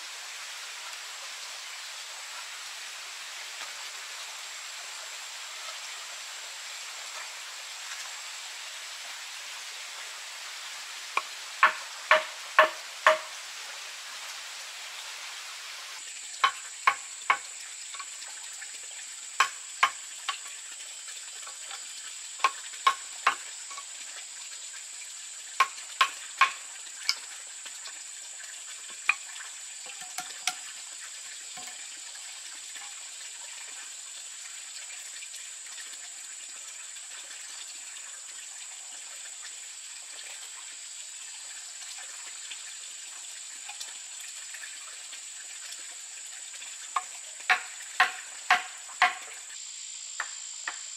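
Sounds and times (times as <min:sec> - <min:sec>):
steady high hiss: 0:00.0 - 0:33.1, 0:46.8 - 0:50.9
mallet knocking on chisel: 0:11.6 - 0:13.3, 0:47.5 - 0:49.2.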